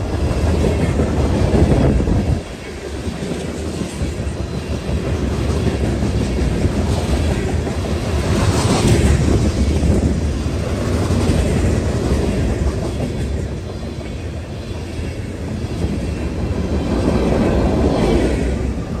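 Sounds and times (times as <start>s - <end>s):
freight train rolling past: 0.0s - 19.0s.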